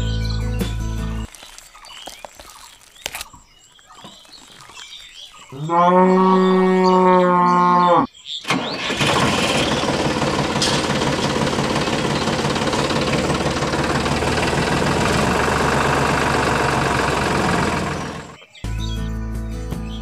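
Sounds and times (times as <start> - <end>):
tractor engine chugging: 8.5 - 18.4.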